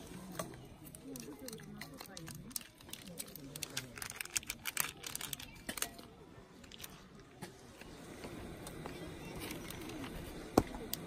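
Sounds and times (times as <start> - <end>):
paper packet crinkling: 1.1 - 7.0
gas burner hissing: 6.4 - 11.0.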